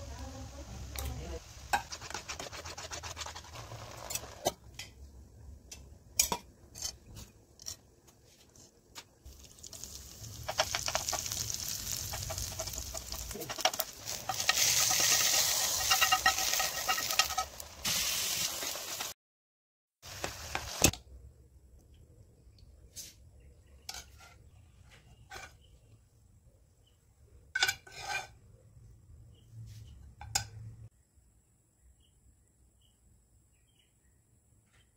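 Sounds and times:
spices sizzling in hot oil: 0.0s - 4.8s, 9.2s - 19.2s, 20.0s - 21.0s
spoon stirring thick paste: 1.8s - 4.4s.

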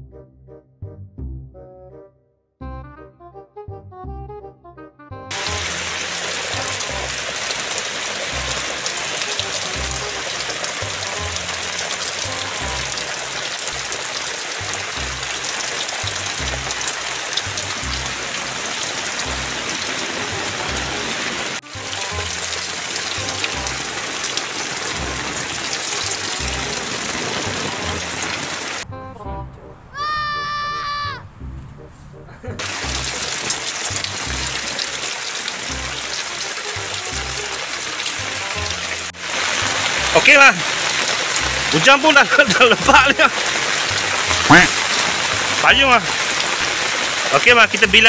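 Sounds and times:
heavy rain splashing: 5.3s - 28.8s, 32.6s - 48.0s.

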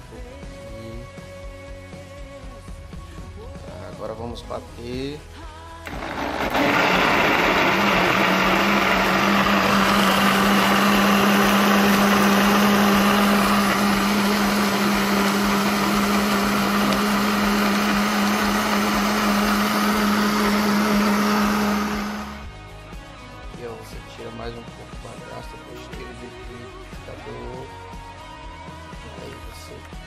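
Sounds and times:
electric blender running: 5.8s - 22.5s.

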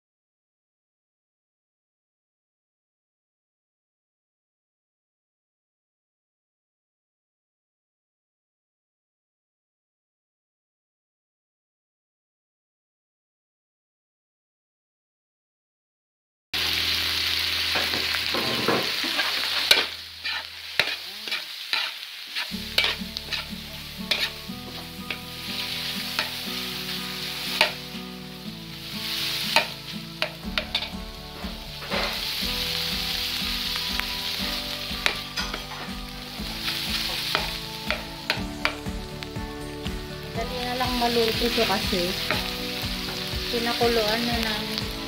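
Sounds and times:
food sizzling in a wok: 16.6s - 45.0s
metal spatula scraping pan: 17.7s - 28.0s, 29.0s - 38.8s, 41.2s - 44.2s.

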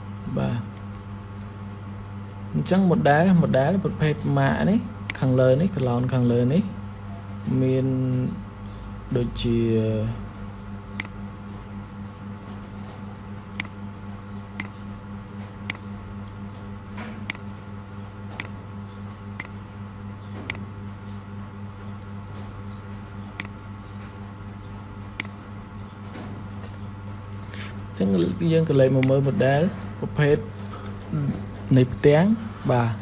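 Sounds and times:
low electrical hum: 0.0s - 33.0s
computer mouse clicking: 10.9s - 11.2s, 13.5s - 13.8s, 14.6s - 15.0s, 17.2s - 17.6s, 18.3s - 18.6s, 19.4s - 19.6s, 23.4s - 24.3s, 25.2s - 25.9s.

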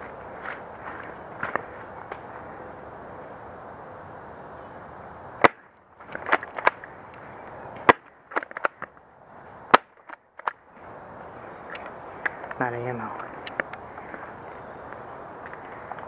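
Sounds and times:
rustling through undergrowth: 0.0s - 2.5s.

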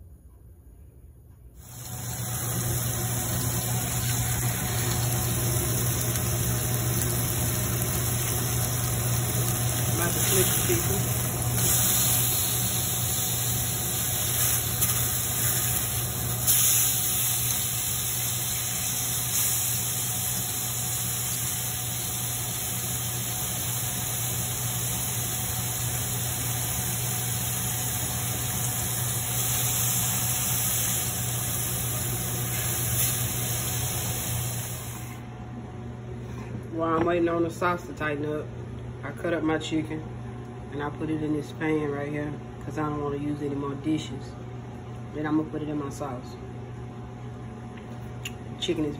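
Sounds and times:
chicken sizzling in a pan: 1.6s - 35.0s.

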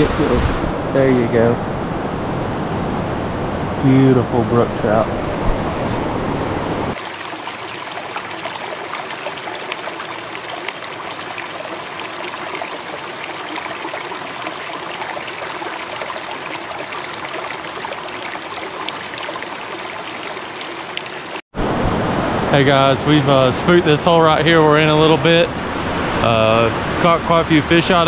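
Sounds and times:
small water splashes: 6.9s - 21.4s.

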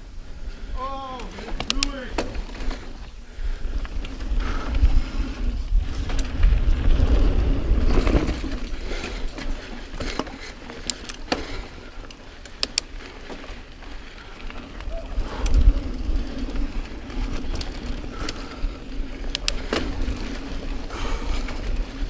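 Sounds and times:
wind rumble on microphone: 0.0s - 9.8s, 14.5s - 22.0s
bike rattling: 0.0s - 22.0s
tyres rolling on dirt: 0.0s - 22.0s
sharp clicks over bumps: 0.9s - 22.0s.

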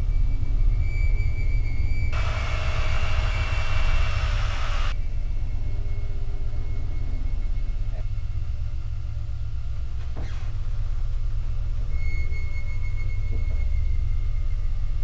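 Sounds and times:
low rumbling drone: 0.0s - 15.0s
loud hiss: 2.2s - 5.0s.

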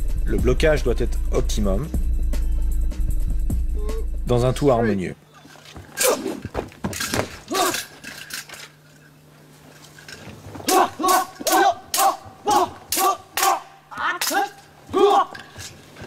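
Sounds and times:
martial artists' battle cries: 5.9s - 6.5s, 7.4s - 8.1s, 10.6s - 15.8s.

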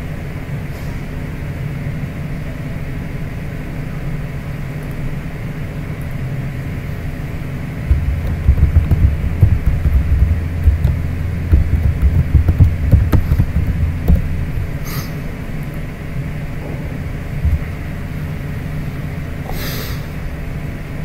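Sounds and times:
steady low hum: 0.0s - 21.0s
uneven low rumble: 7.9s - 15.3s, 16.6s - 18.7s.

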